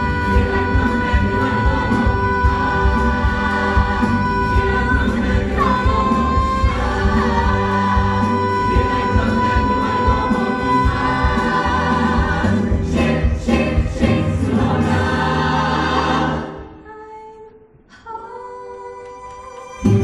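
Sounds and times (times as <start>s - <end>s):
musical cast singing with band: 0.0s - 16.8s.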